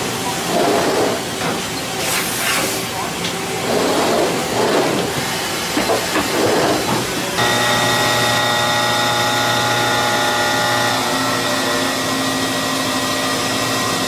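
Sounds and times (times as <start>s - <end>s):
milling spindle whine: 7.4s - 13.4s.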